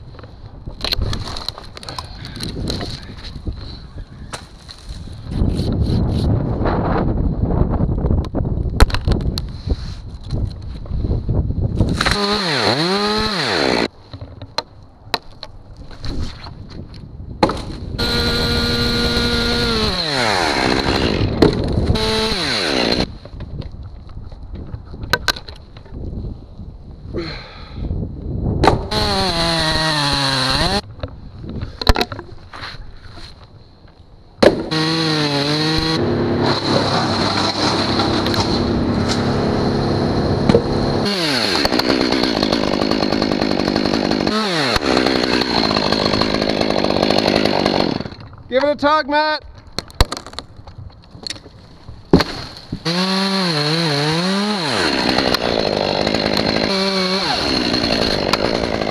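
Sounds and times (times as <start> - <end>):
chainsaw revving: 12.0 - 13.9, 18.0 - 23.1, 28.9 - 30.8, 34.6 - 48.2, 52.8 - 58.9.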